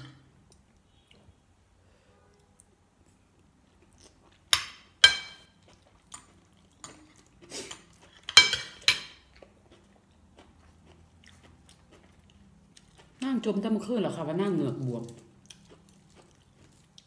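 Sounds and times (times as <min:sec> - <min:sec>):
cutlery clinking on ceramic plate: 0:08.2 - 0:09.2.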